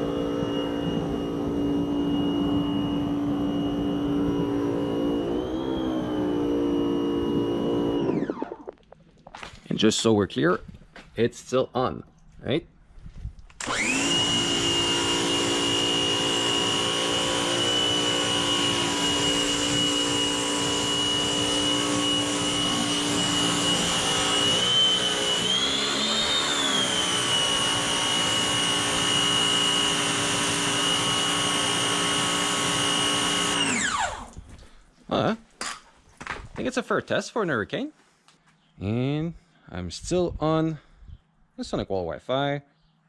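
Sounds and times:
pressure washer motor whining: 0:00.0 - 0:08.8, 0:13.5 - 0:34.5.

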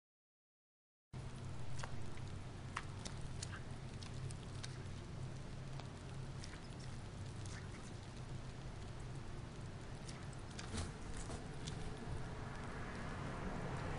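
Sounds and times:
steady low hum: 0:01.2 - 0:13.9.

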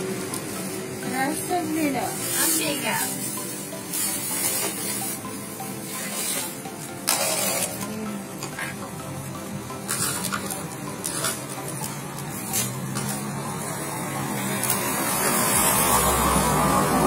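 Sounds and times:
plastic bags rustling: 0:00.1 - 0:09.0, 0:09.7 - 0:17.0
vehicle approaching: 0:07.7 - 0:17.0.

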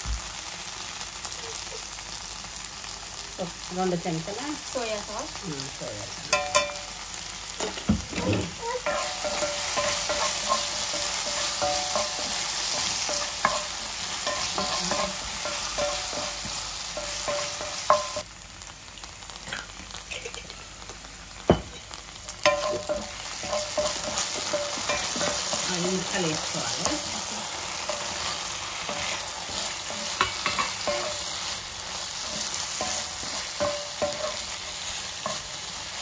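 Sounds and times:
vegetables sizzling in a skillet: 0:00.0 - 0:36.0
spatula scraping a pan: 0:07.6 - 0:18.2, 0:22.5 - 0:36.0.

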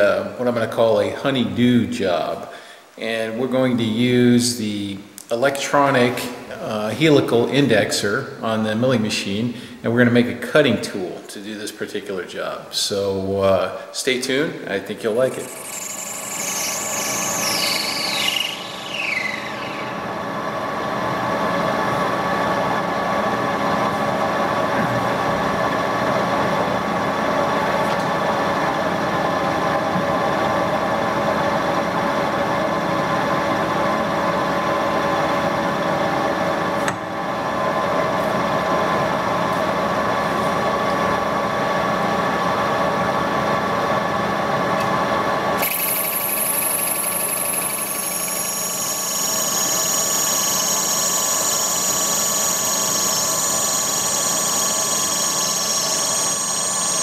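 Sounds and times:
metal lathe gear whine: 0:15.3 - 0:22.8, 0:45.6 - 0:57.0.

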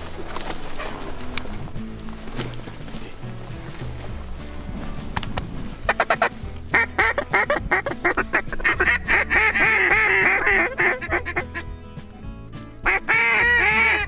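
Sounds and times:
duck call clicks: 0:05.9 - 0:11.7, 0:12.8 - 0:14.0
duck call quacks: 0:05.9 - 0:11.7, 0:12.8 - 0:14.0.

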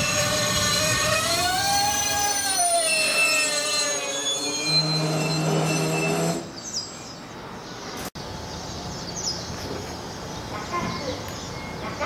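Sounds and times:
electric train motor hum: 0:00.0 - 0:06.5.

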